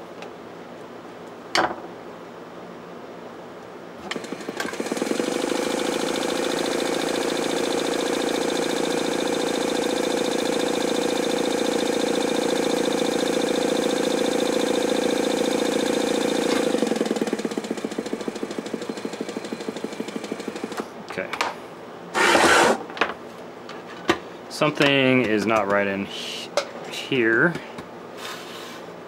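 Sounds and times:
sewing machine motor running: 4.1 - 20.8, 22.2 - 22.8.

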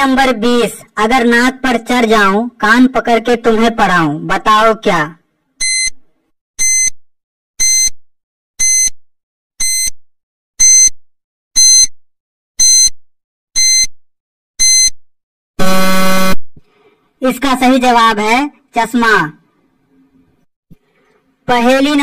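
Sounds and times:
low buzzer: 6.6 - 7.0, 7.6 - 8.0, 8.6 - 9.0, 9.6 - 9.9, 10.6 - 10.9, 11.6 - 11.9, 12.6 - 13.0, 13.6 - 13.9, 14.6 - 15.0, 15.6 - 16.4.

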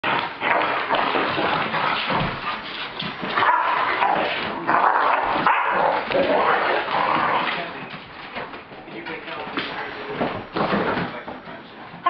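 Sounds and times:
dogs play-fighting vocal noises: 0.0 - 7.6.

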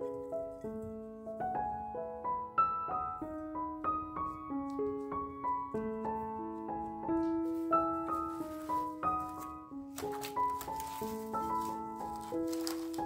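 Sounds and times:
gentle piano music: 0.0 - 13.0.

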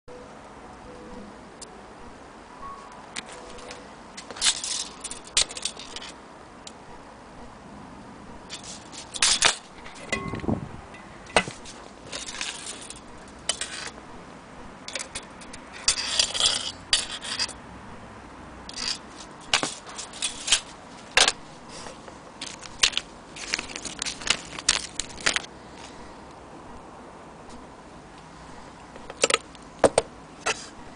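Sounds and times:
handling scrapes and rubs: 8.5 - 10.2, 11.3 - 14.0, 14.9 - 17.6, 18.7 - 26.0, 30.4 - 30.8.

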